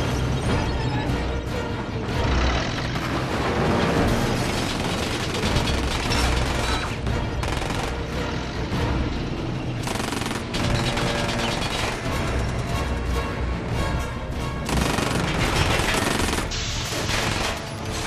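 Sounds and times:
film score music: 0.0 - 18.0
rapid automatic gunfire: 4.6 - 8.1, 9.8 - 12.0, 14.7 - 16.6.

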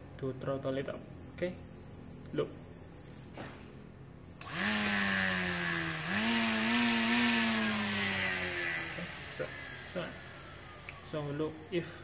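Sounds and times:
grass trimmer motor whine: 4.4 - 11.4.

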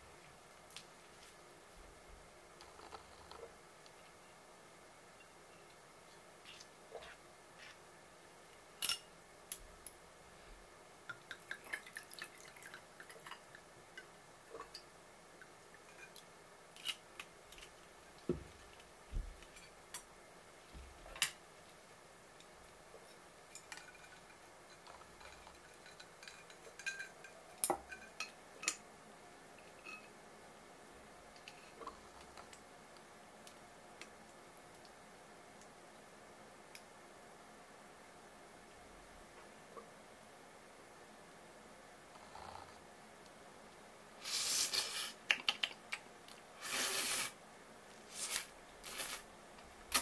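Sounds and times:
glass and ice clinking: 23.6 - 28.8.

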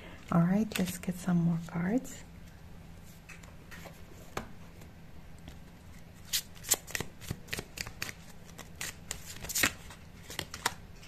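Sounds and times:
cards being shuffled: 3.0 - 11.0.

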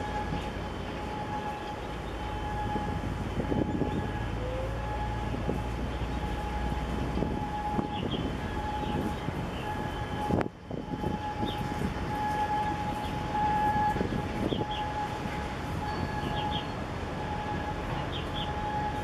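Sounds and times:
outdoor rumble: 0.0 - 19.0
birds chirping: 7.8 - 10.3, 14.5 - 15.0, 15.9 - 16.7, 18.0 - 18.7.

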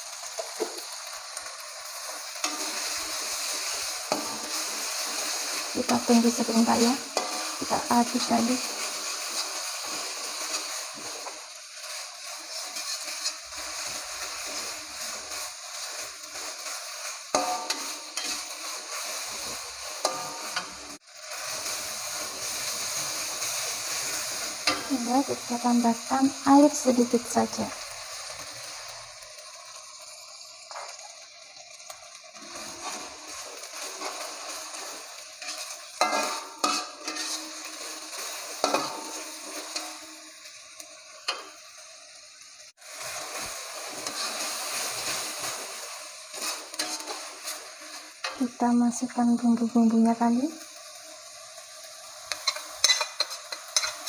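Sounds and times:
paste sizzling in hot oil: 0.0 - 54.0
metal spatula scraping a pan: 0.3 - 28.8, 32.4 - 40.6, 42.8 - 48.4, 52.3 - 54.0
spatula clanking on pan: 17.3 - 18.6, 20.0 - 20.8, 35.4 - 37.9, 38.6 - 40.1, 46.4 - 47.2, 52.3 - 54.0.

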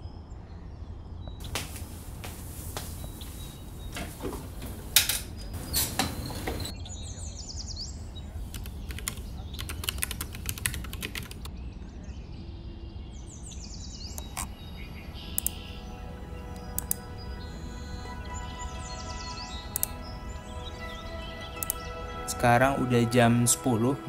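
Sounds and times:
bird chirping: 1.2 - 24.0
typing on mechanical keyboard: 8.5 - 11.5.

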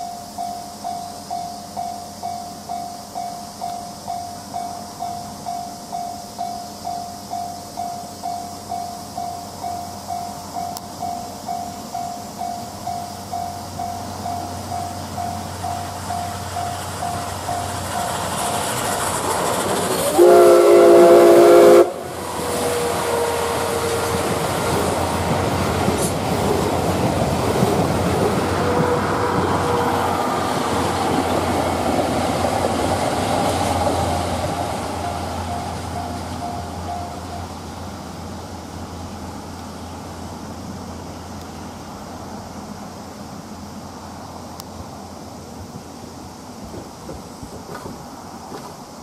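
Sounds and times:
train wheels clacking over rails: 0.0 - 39.5, 46.6 - 49.0
steam whistle: 19.9 - 25.0, 28.5 - 30.9.

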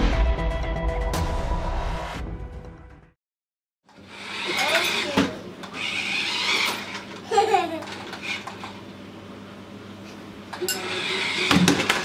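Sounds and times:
toddler giggling: 7.2 - 8.0.

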